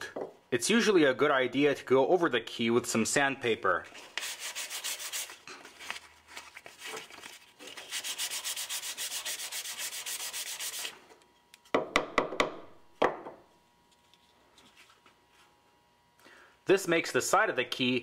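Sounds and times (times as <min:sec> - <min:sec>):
sandpaper rubbing wood: 0:04.0 - 0:06.0, 0:07.6 - 0:11.0.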